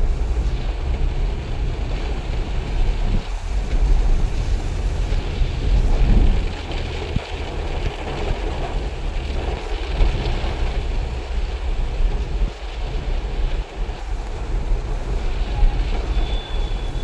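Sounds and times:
car and tyres rumbling: 0:00.0 - 0:17.0
rain hissing on car roof: 0:00.0 - 0:17.0.

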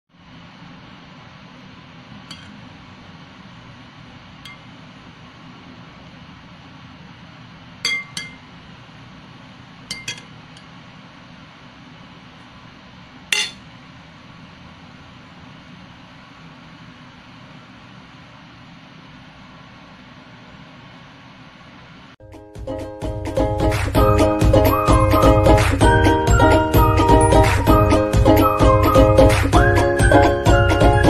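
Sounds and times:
steady low hum: 0:00.2 - 0:22.2
spoon clinking on ceramic bowl: 0:02.3 - 0:02.5, 0:07.9 - 0:08.5, 0:09.9 - 0:10.3, 0:13.4 - 0:13.6.

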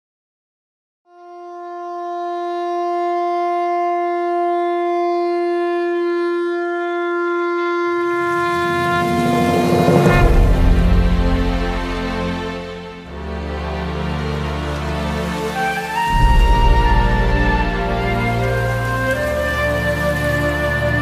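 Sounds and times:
conch shell blown: 0:01.1 - 0:11.8, 0:15.4 - 0:21.0
music with deep low end: 0:08.2 - 0:21.0.

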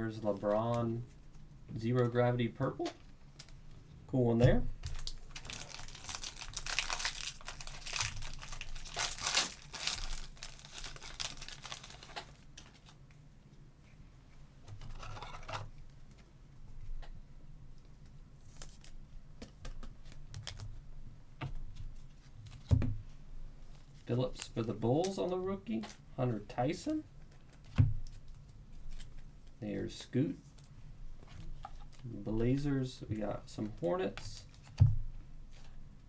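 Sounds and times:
foil wrapper tearing and crinkling: 0:04.9 - 0:13.0
cards being handled: 0:18.4 - 0:20.8.

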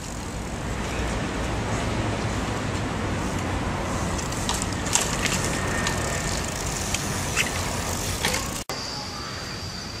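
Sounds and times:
steady high whine: 0:05.5 - 0:10.0.

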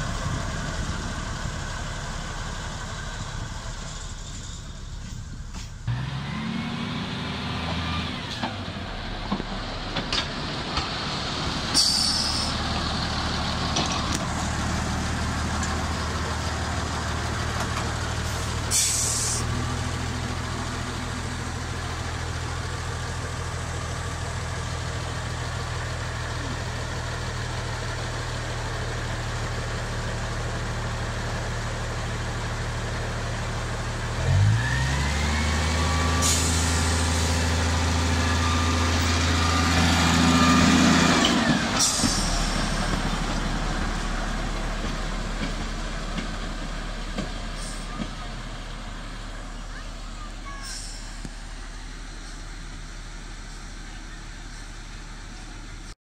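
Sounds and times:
diesel locomotive engine running: 0:00.0 - 0:56.0
engine whine: 0:00.0 - 0:56.0.

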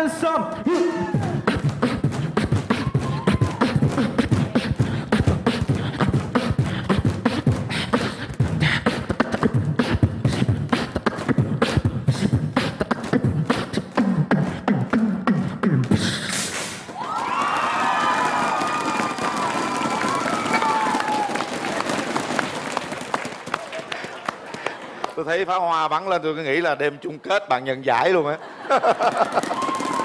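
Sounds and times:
person beatboxing into microphone: 0:00.0 - 0:16.9.

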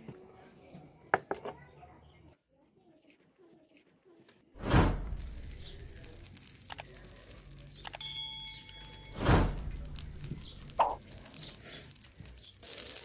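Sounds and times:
loud brief whooshes: 0:04.6 - 0:05.3, 0:09.2 - 0:10.1
metal cookware clinking: 0:08.0 - 0:09.3.

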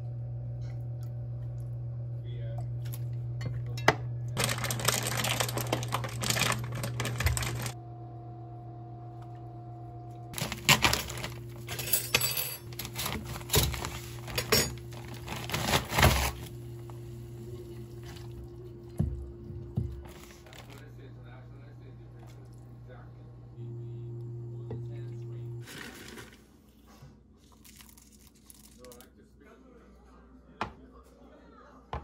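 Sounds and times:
low hum: 0:00.0 - 0:25.7
dishes and cutlery clattering: 0:11.7 - 0:14.8.

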